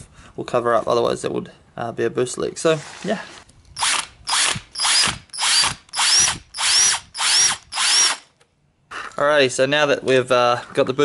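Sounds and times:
cordless drill cutting metal: 3.8 - 8.3.

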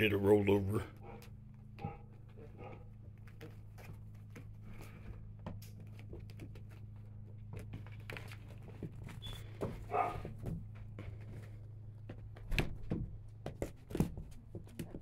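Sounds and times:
steady low hum: 0.0 - 15.0
puppy paws pattering: 1.0 - 12.5.

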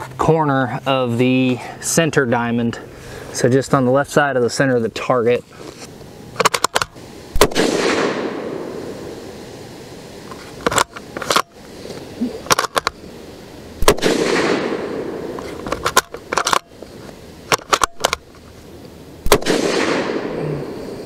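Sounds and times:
rifle shots: 7.4 - 8.8, 13.8 - 15.3, 19.2 - 20.4
metallic clicks of rifle bolt: 15.4 - 16.7, 17.5 - 18.3.

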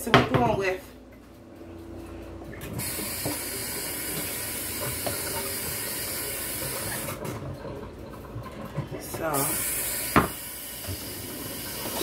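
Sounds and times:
faucet running into steel sink: 2.6 - 12.0.

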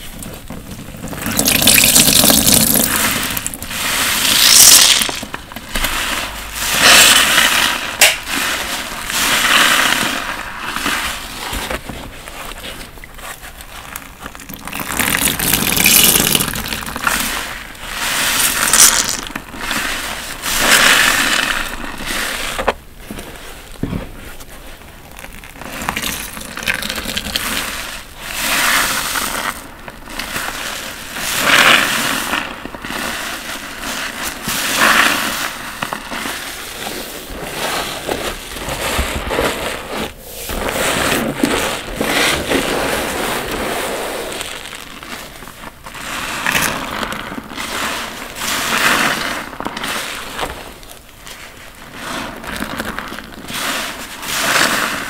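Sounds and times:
water gushing: 0.0 - 11.2, 14.4 - 21.6
wet sponge squelching: 0.0 - 55.0.

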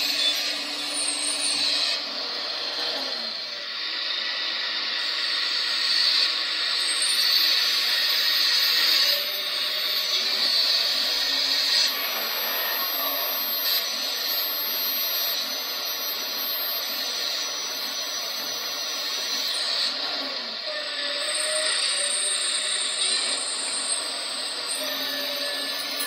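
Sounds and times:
hydraulic pump whirring: 0.0 - 26.0.

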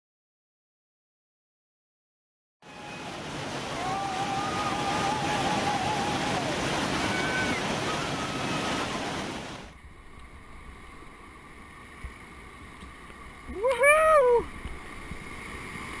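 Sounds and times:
whitewater rapid roaring: 2.6 - 11.8, 13.3 - 16.0
quiet wash of moving water: 2.6 - 16.0.

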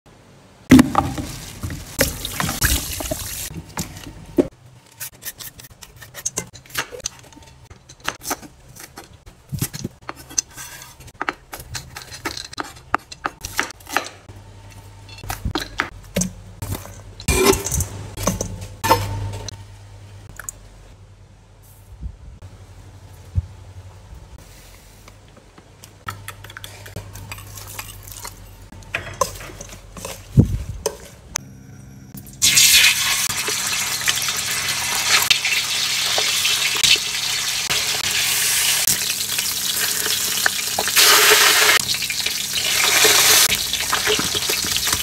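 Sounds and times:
bowls and utensils clattering: 15.0 - 19.5, 26.1 - 31.3, 39.8 - 45.0.

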